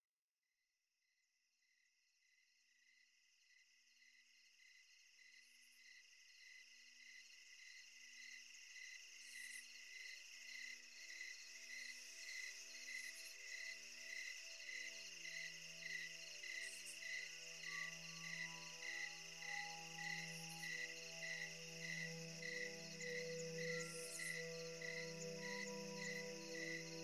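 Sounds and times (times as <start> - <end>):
crickets chirping: 2.2 - 27.0
ambient music sustained notes: 11.1 - 27.0.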